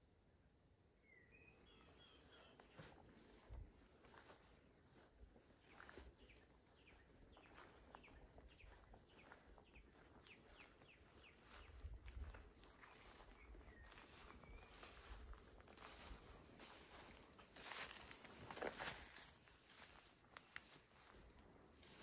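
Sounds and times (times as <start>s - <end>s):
high insect drone: 0.0s - 22.0s
bird chirps: 1.0s - 3.5s, 5.6s - 17.1s.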